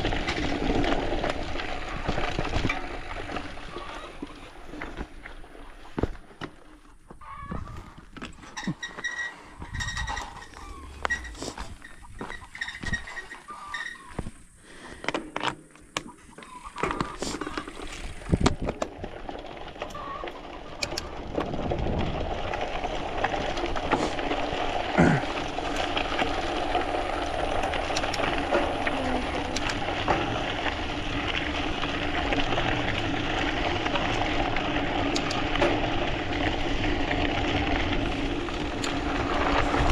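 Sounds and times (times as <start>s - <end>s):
mountain bike rattling: 0.0s - 39.9s
wind on microphone: 9.6s - 12.2s.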